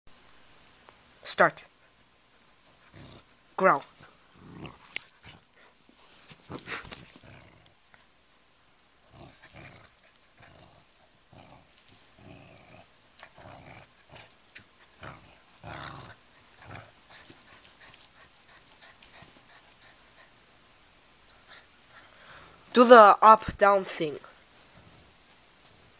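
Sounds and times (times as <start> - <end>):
dog play-growling: 2.7 - 3.3, 3.9 - 7.8, 9.0 - 20.4, 21.4 - 22.0.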